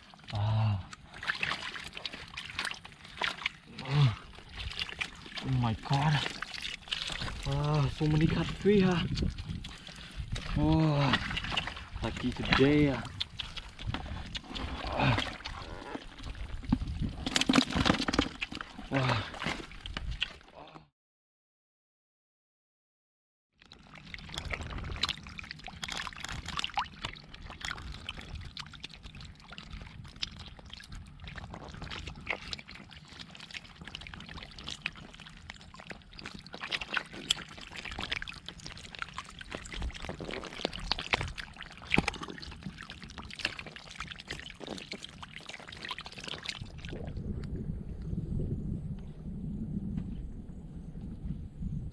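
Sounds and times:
fish splashing in muddy water: 0.0 - 20.5, 23.6 - 47.6.

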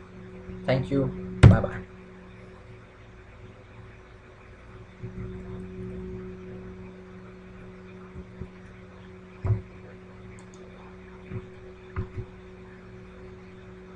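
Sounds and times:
electrical hum: 0.0 - 13.9
short low thumps: 1.4 - 1.8, 9.4 - 9.8.

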